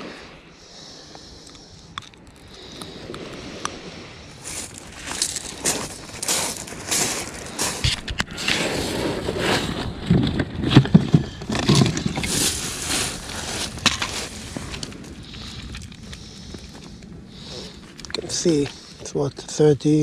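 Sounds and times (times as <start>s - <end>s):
pebbles crunching underfoot: 4.4s - 18.8s.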